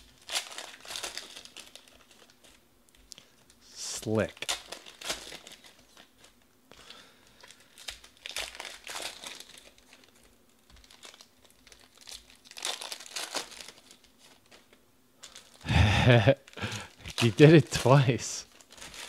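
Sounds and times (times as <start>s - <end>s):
foil wrappers crinkling: 0.0s - 19.0s
cards being handled: 16.6s - 19.0s.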